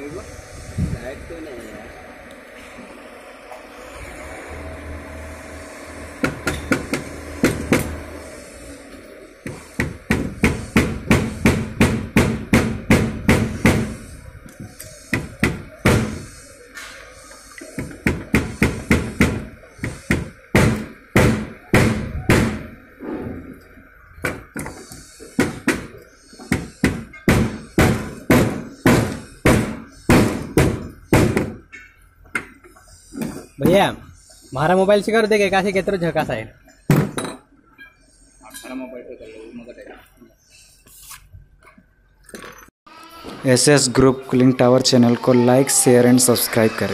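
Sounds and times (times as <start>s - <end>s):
hammer striking metal: 25.4s - 32.5s.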